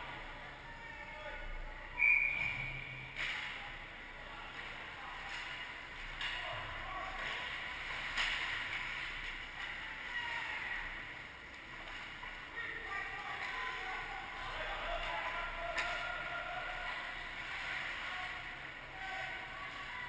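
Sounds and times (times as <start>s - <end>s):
faint distant shouts: 0.2s - 3.2s, 9.7s - 11.1s, 12.5s - 20.0s.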